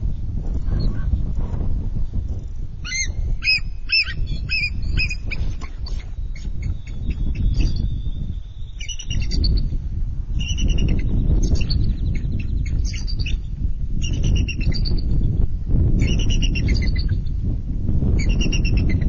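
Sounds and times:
steady low rumble: 0.0s - 19.0s
eagles piping chirp calls: 2.8s - 7.8s.

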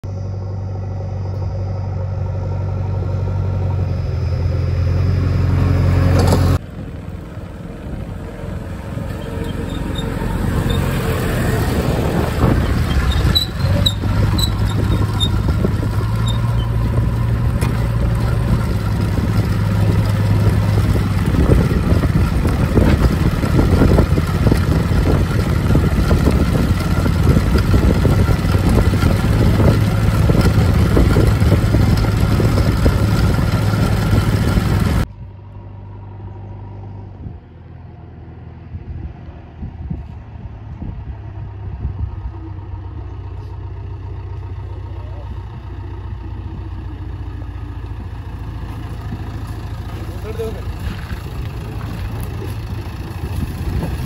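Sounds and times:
heavy diesel engines humming: 0.0s - 54.0s
irregular clatter: 6.1s - 6.6s, 9.0s - 35.1s, 47.5s - 54.0s.

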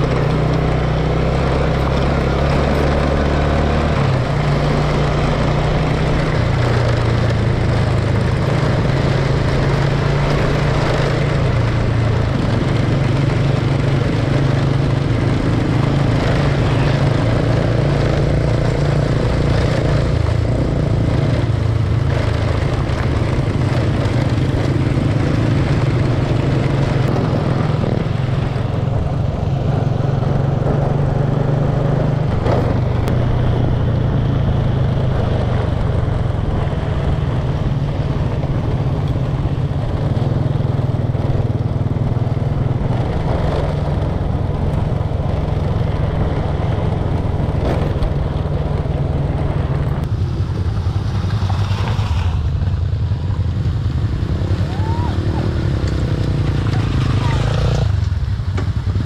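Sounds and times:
motorcycle engine running: 0.0s - 59.0s
road noise: 0.0s - 59.0s
wind noise: 0.0s - 59.0s.

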